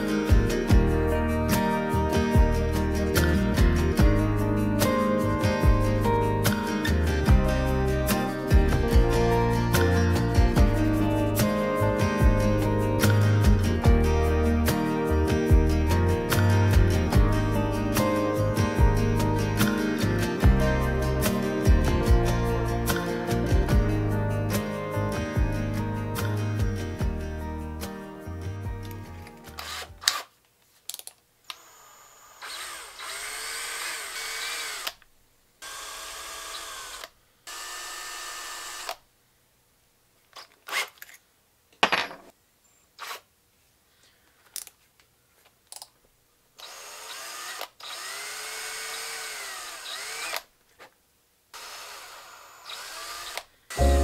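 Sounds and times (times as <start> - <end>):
power drill boring into wood: 29.5 - 30.3, 31.5 - 35.0, 35.6 - 39.0, 46.6 - 50.5, 51.6 - 53.9.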